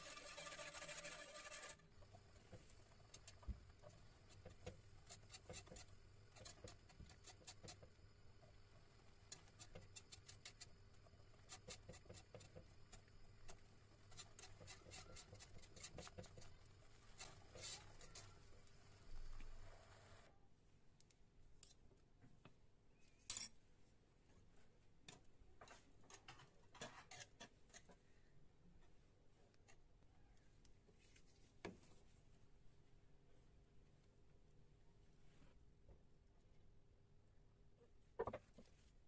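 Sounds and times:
whisk scraping saucepan: 0.0s - 8.0s, 9.3s - 18.6s, 25.7s - 28.0s.

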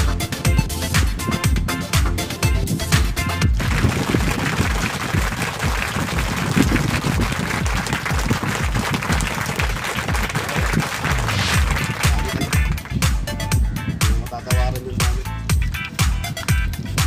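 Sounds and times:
music with low beat: 0.0s - 17.0s
hissy applause-like texture: 3.5s - 13.2s.

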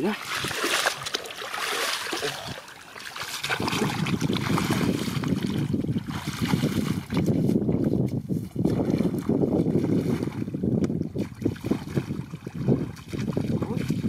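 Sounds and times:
water trickling and sloshing: 0.0s - 14.0s
wind on microphone: 3.2s - 14.0s.

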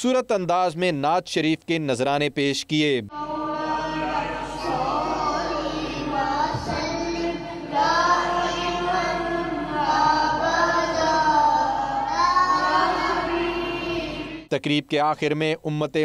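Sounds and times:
boy singing devotional song: 3.1s - 14.5s.

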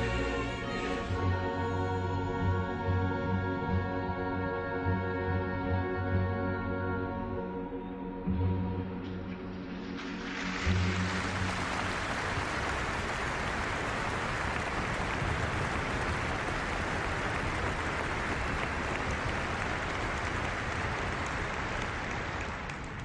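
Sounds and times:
audience applauding: 10.0s - 23.0s.

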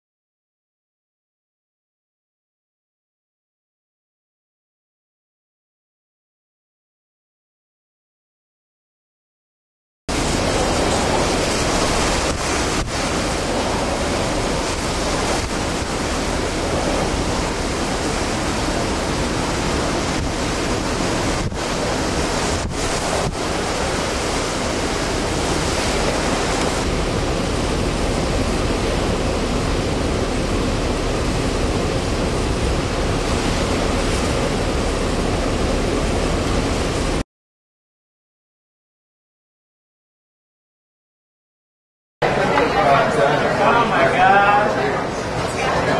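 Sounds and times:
strong wind roaring on microphone: 10.1s - 37.2s.

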